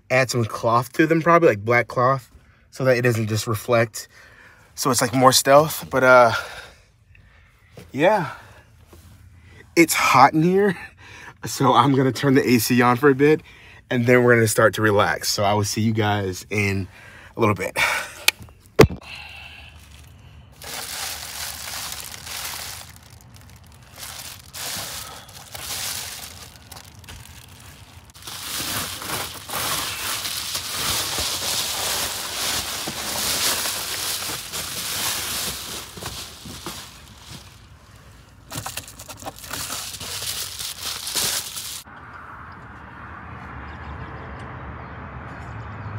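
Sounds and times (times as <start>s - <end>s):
foil crinkling and crumpling: 19.8s - 37.7s, 38.5s - 41.8s.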